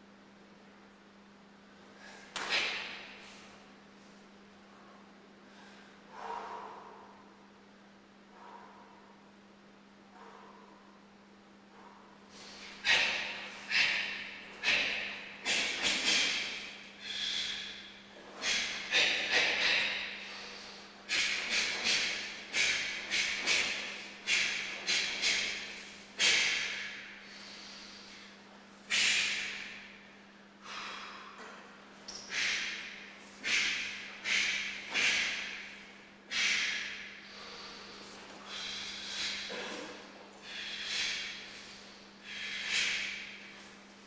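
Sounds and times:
sharp hissing exhalations: 12.3s - 17.8s, 36.3s - 39.8s, 40.4s - 43.4s.

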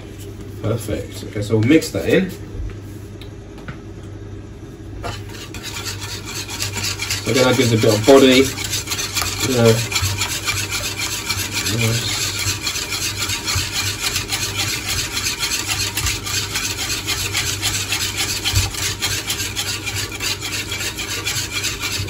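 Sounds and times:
whisk scraping a saucepan: 5.0s - 22.0s.

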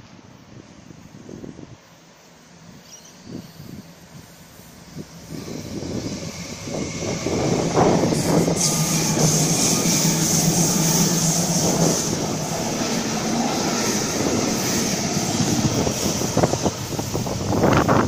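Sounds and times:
electric train rumbling past: 0.0s - 18.0s
train hum and hiss: 0.0s - 18.0s
wind buffeting microphone: 4.9s - 18.0s
train wheels clickety-clack: 5.3s - 18.0s.

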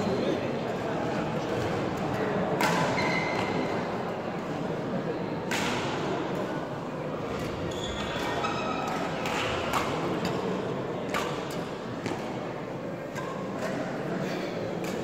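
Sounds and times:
racket hitting shuttlecock: 2.5s - 3.6s, 5.5s - 6.4s, 7.3s - 14.1s, 14.7s - 15.0s
shoe squeak on court floor: 2.9s - 3.6s, 7.5s - 8.9s.

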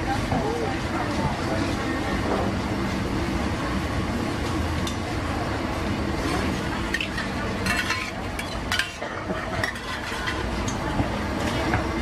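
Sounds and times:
metal spatulas clinking on pan: 6.9s - 10.8s.

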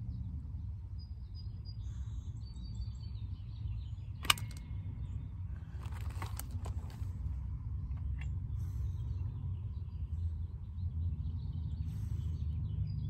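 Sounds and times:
sharp click: 4.2s - 4.7s
light clicks and rustles: 5.6s - 7.3s.

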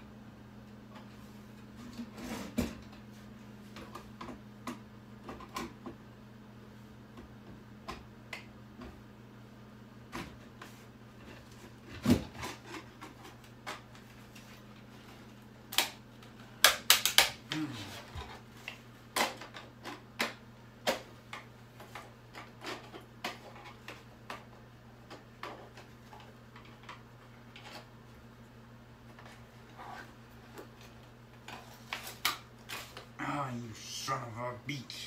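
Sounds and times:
steady low hum: 20.4s - 35.0s.

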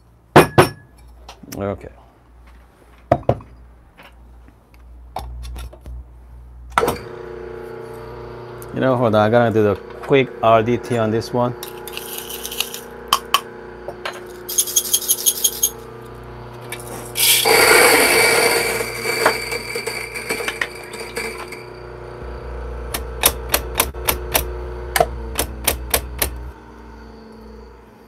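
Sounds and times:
grinder humming: 6.8s - 28.0s
beans rushing into grinder: 10.9s - 13.1s, 16.7s - 21.8s
beans rattling in a cup: 11.6s - 12.9s, 14.2s - 15.8s, 16.8s - 21.5s.

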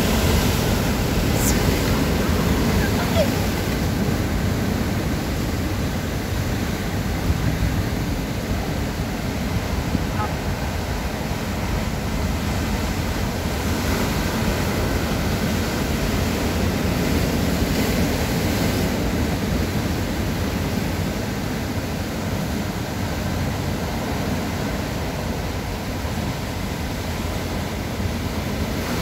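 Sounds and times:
surf breaking over rocks: 0.0s - 20.0s.

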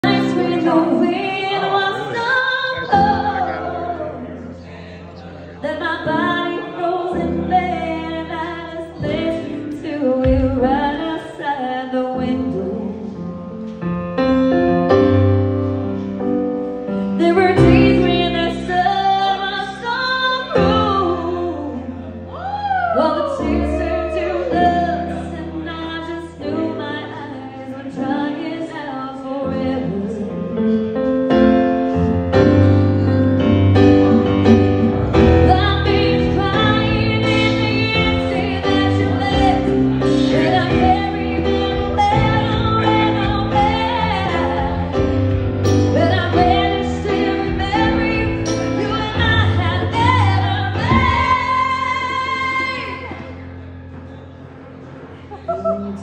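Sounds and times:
woman singing into a microphone: 0.0s - 4.4s, 5.6s - 13.4s, 17.1s - 31.4s, 35.2s - 53.4s.

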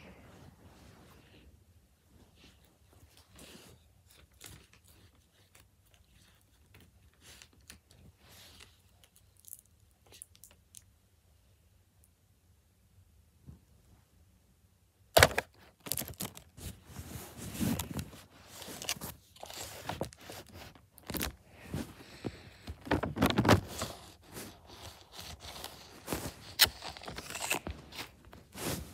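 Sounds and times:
foil snack bag crinkling: 15.2s - 16.5s, 22.1s - 28.8s.

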